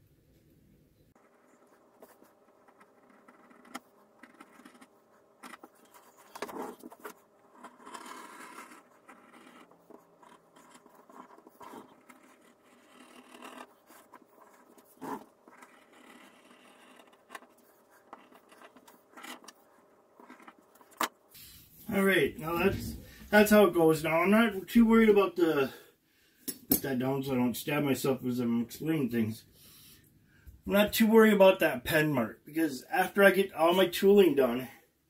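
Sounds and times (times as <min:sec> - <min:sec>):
knife scraping through leather: 0:02.8 - 0:19.6.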